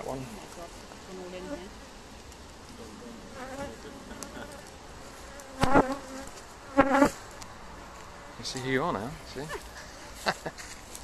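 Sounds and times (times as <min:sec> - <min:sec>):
honeybees buzzing: 0:00.0 - 0:08.5
bee buzzing past close by: 0:02.9 - 0:07.3.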